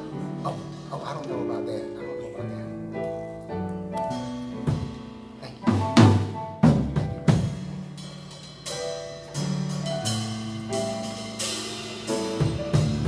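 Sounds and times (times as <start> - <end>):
loud drum hits: 5.7 - 7.8.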